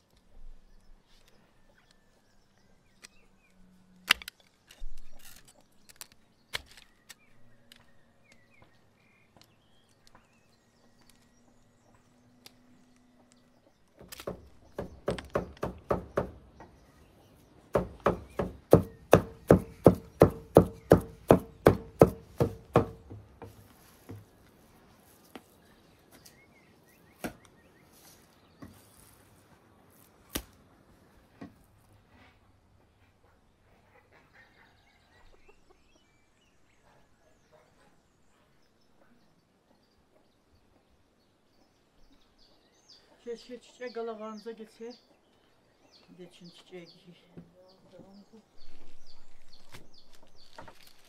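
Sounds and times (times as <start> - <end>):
cleaver chopping meat on wood: 17.8 - 23.2.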